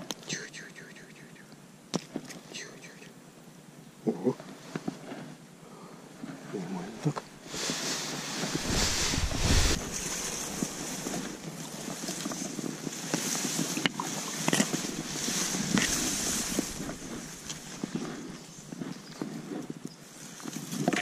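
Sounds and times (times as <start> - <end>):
grass and reeds rustling: 4.2 - 5.4, 6.2 - 21.0
wind rushing over microphone: 7.3 - 13.0, 13.6 - 18.4.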